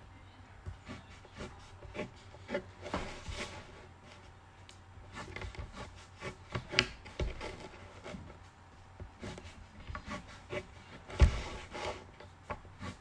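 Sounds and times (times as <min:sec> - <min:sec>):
crayon scratching on paper: 0:00.7 - 0:03.9, 0:05.1 - 0:08.4, 0:09.1 - 0:13.0.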